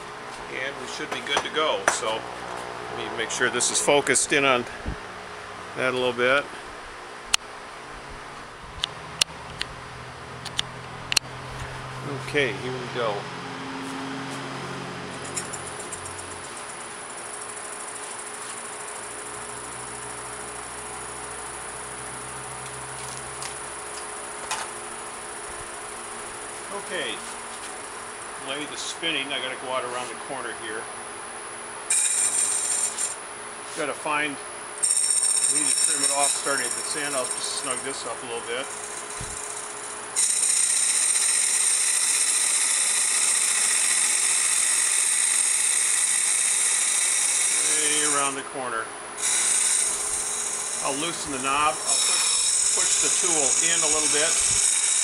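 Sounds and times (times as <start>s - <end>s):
wood lathe motor hum: 31.9s - 33.2s, 34.8s - 48.5s, 49.2s - 55.0s.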